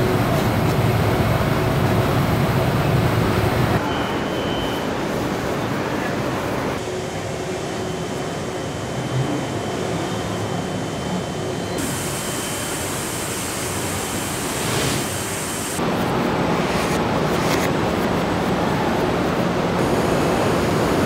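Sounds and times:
production line hum and hiss: 0:00.0 - 0:21.0
faint high whine: 0:01.4 - 0:16.6.

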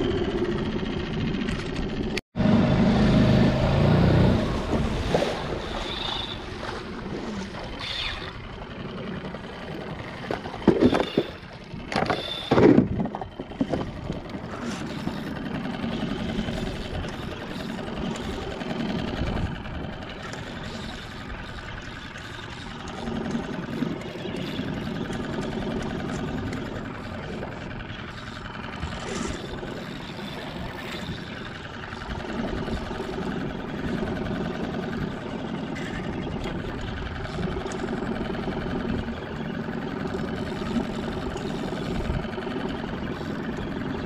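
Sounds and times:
outboard motor running: 0:00.0 - 0:44.0
water rushing along hull: 0:02.4 - 0:44.0.

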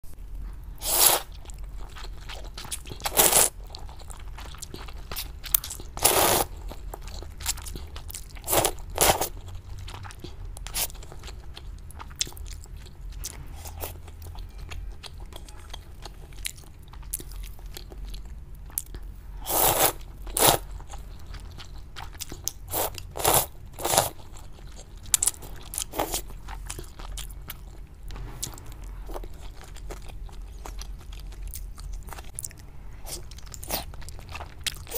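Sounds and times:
noodle slurping: 0:00.8 - 0:01.3
wet chewing and crunching: 0:00.8 - 0:34.9.

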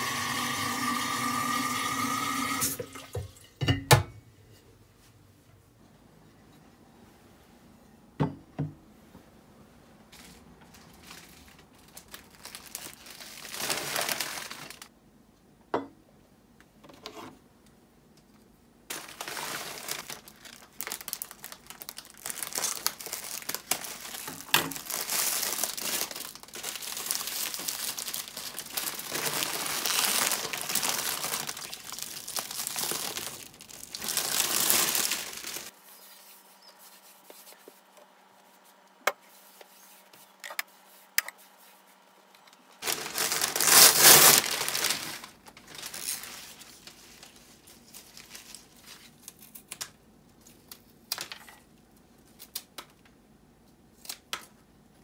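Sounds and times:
packaging crinkling and rustling: 0:10.2 - 0:14.9, 0:18.9 - 0:35.8, 0:42.8 - 0:53.1.

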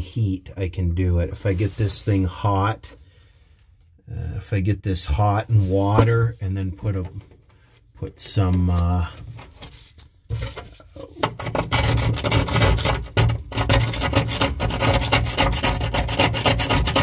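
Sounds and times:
disc rasping on metal pipe: 0:11.2 - 0:17.0.

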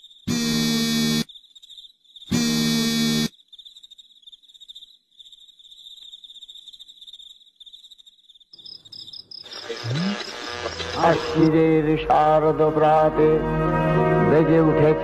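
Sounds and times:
crickets chirping: 0:00.0 - 0:11.5
alarm clock buzzing: 0:00.3 - 0:01.3, 0:02.3 - 0:03.3, 0:09.4 - 0:11.5
radio hiss: 0:09.5 - 0:11.8.

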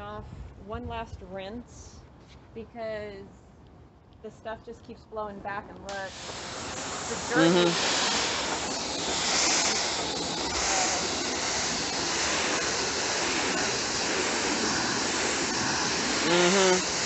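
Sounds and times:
pressure washer spraying concrete: 0:05.9 - 0:17.0.

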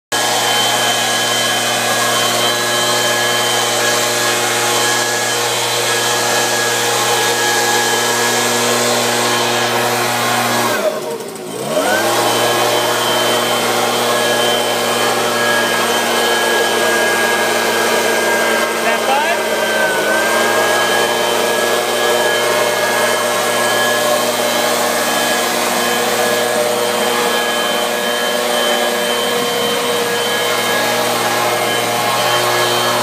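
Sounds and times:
leaf blower running: 0:00.0 - 0:33.0.

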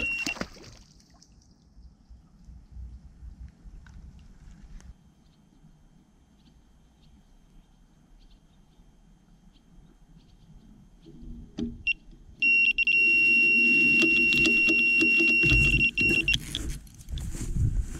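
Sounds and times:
bite alarm beeps: 0:00.0 - 0:00.5, 0:11.8 - 0:16.7
bite alarm continuous tone: 0:00.0 - 0:00.5, 0:11.8 - 0:16.8
faint bird chirps: 0:05.0 - 0:11.2.

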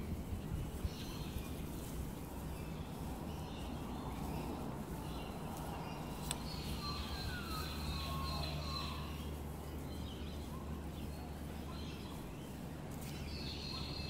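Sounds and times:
steady low rumble: 0:00.0 - 0:14.0
faint bird chirps: 0:05.9 - 0:09.4.

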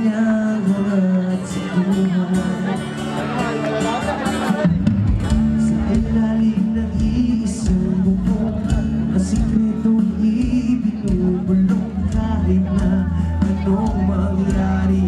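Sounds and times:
pop band playing live: 0:00.0 - 0:15.0.

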